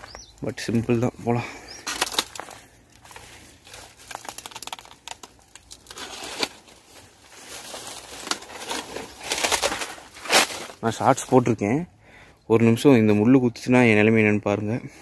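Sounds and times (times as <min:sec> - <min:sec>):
footsteps crunching through dry leaves: 0:00.0 - 0:11.6
plants brushing and rustling: 0:00.0 - 0:11.8.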